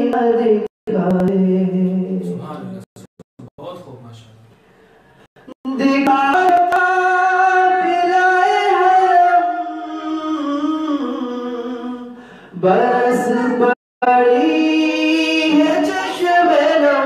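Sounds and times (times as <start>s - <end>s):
man singing unaccompanied: 5.4s - 17.0s.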